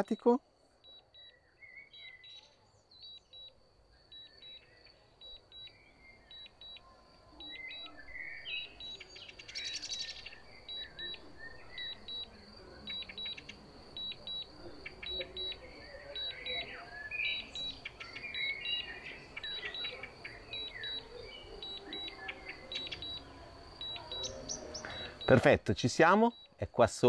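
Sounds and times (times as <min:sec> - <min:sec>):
birds chirping faintly: 0:00.0 - 0:27.0
remote controller double beeps: 0:10.6 - 0:12.3, 0:12.9 - 0:25.6.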